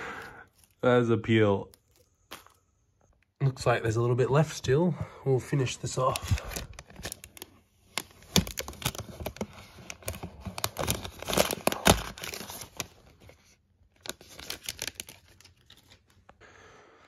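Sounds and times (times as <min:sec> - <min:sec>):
plastic film crinkling: 0:00.4 - 0:03.3, 0:05.9 - 0:16.3.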